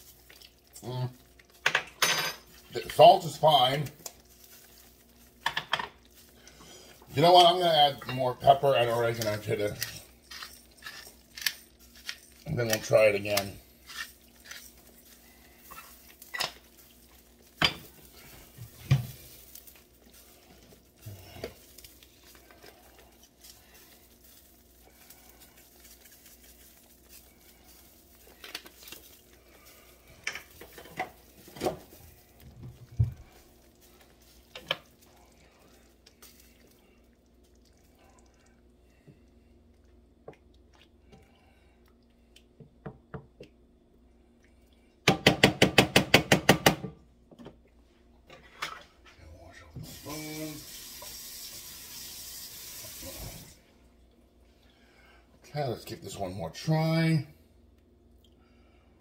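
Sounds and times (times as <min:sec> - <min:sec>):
faint steady hum: 0:00.0 - 0:45.6, 0:46.7 - 0:59.0
kitchen utensils clinking: 0:01.6 - 0:03.8.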